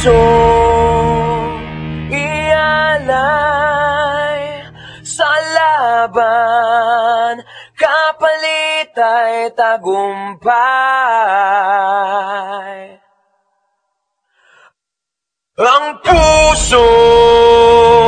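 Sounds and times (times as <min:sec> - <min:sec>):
person singing wavering notes: 0:00.0 - 0:07.3.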